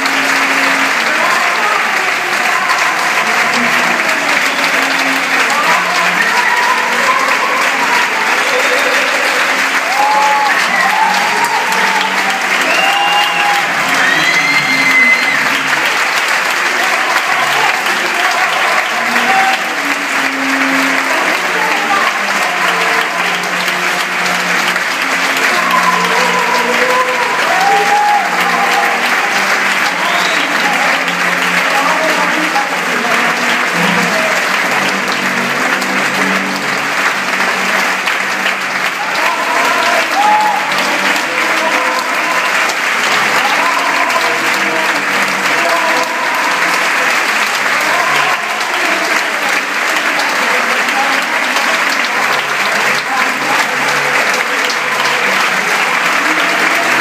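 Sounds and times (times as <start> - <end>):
audience applauding: 0.0 - 57.0
cheers and shouts: 0.0 - 57.0.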